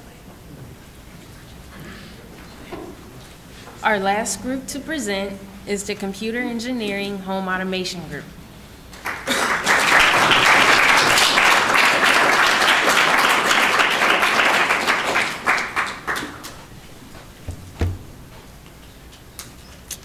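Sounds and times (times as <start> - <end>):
audience applauding: 8.9 - 16.8
isolated knocks: 17.1 - 18.5.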